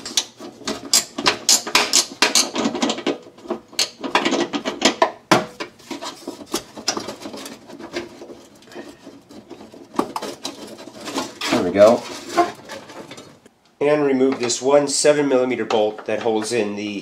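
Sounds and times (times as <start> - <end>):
hand tools clicking and clinking: 0.0 - 13.4
knocks and rubbing: 0.0 - 13.6.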